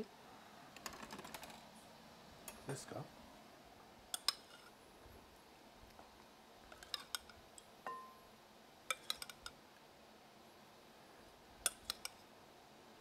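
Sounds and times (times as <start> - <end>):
metal spoon clinking against glass: 7.9 - 8.2.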